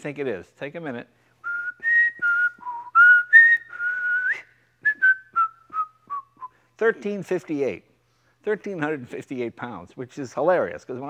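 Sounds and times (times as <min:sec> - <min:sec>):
person whistling a tune: 0:01.4 - 0:06.6
man speaking: 0:06.8 - 0:07.8, 0:08.4 - 0:11.0.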